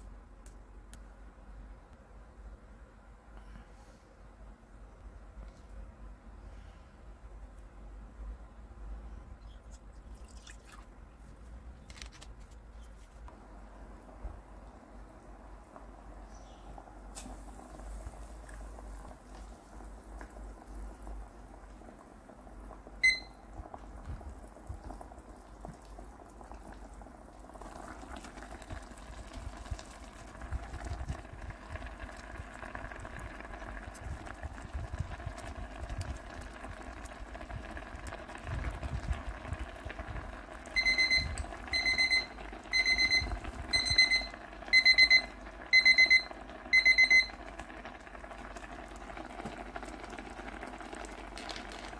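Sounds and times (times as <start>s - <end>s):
water bubbling in a pot: 9.4s - 11.2s, 14.0s - 51.9s
kitchen timer beep: 23.0s - 23.4s, 40.8s - 47.4s
timer alarm rapid beeping: 40.8s - 47.4s.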